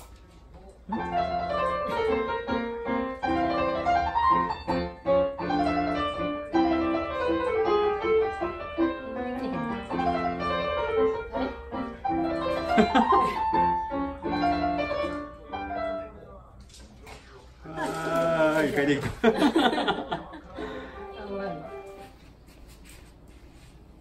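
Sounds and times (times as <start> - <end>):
piano music: 0.9 - 16.5, 20.6 - 22.2.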